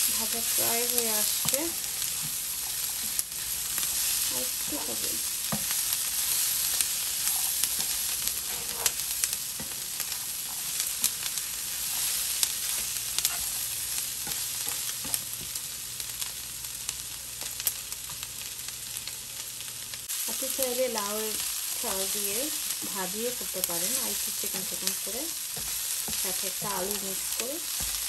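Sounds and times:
vegetables sizzling in a frying pan: 0.0s - 28.0s
spatula scraping a pan: 0.2s - 15.2s.

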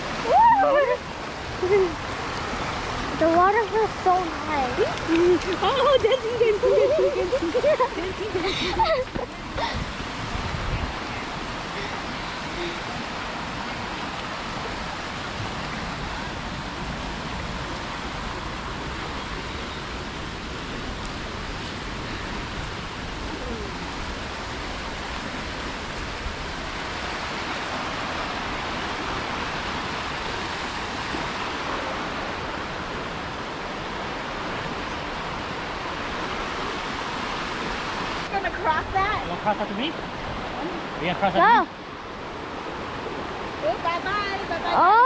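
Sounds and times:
creek rushing over rapids: 0.0s - 45.0s.

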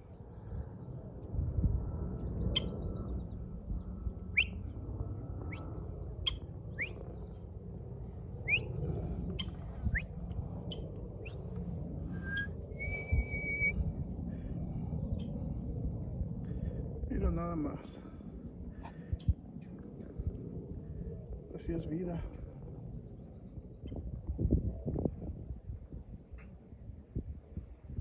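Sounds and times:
low rumble: 0.0s - 28.0s
birds chirping: 2.2s - 4.8s, 5.4s - 11.6s.

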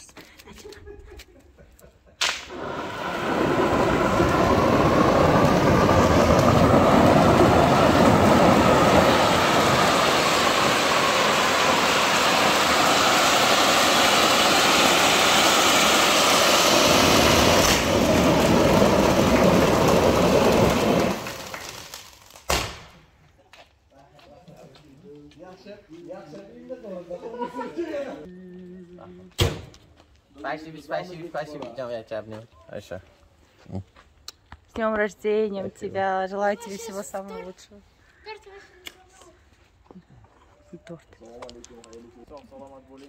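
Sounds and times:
firework pop: 2.2s - 2.7s, 21.0s - 23.0s
firework fountains hissing: 2.2s - 22.5s.

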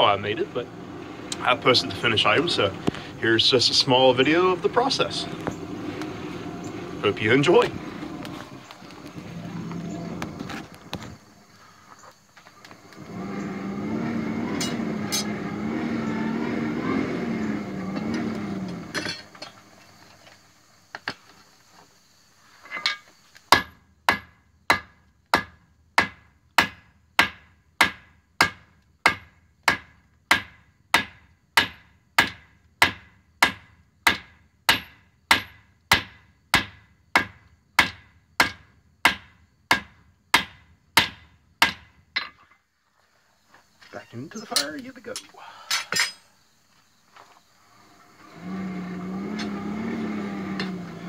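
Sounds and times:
droning hum: 0.0s - 11.9s, 12.6s - 20.0s, 45.9s - 51.0s.

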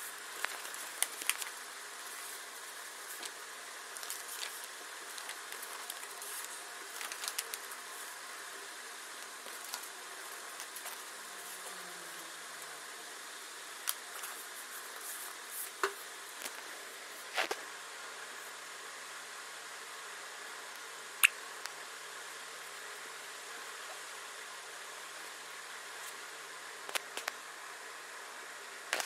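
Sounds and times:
steady hiss: 0.0s - 29.0s
paper rustling: 0.3s - 3.4s, 4.0s - 8.1s, 9.3s - 11.8s.

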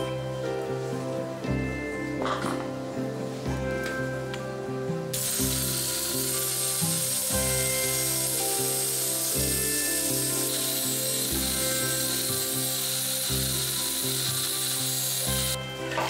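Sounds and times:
background music: 0.0s - 16.0s
rotary tool sanding wood: 5.2s - 15.6s.

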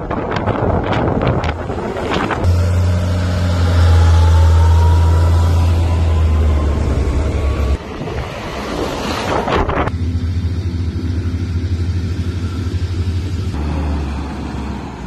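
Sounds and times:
wind-like rumble: 0.0s - 2.5s, 4.0s - 13.6s
tractor diesel engine drone: 1.4s - 9.2s, 9.9s - 15.0s
faint rising whine: 2.4s - 7.9s.

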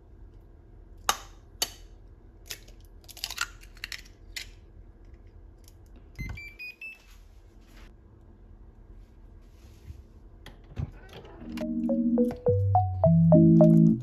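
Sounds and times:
rising beeps: 11.6s - 14.0s.

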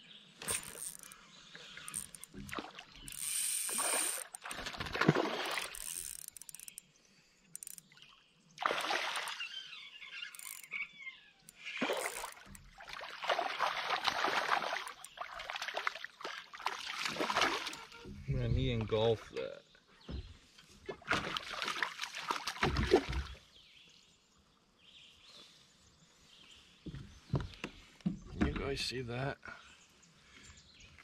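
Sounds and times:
fishing reel cranking: 0.4s - 1.2s, 1.8s - 4.5s, 5.4s - 6.9s, 7.5s - 7.9s, 10.2s - 10.8s, 11.5s - 12.6s
fish splashing at surface: 1.9s - 6.1s.

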